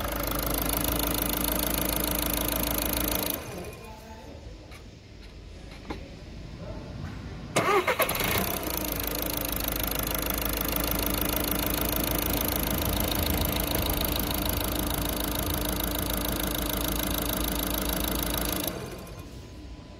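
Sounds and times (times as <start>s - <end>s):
diesel engine idling: 0.0s - 3.8s, 7.6s - 19.5s.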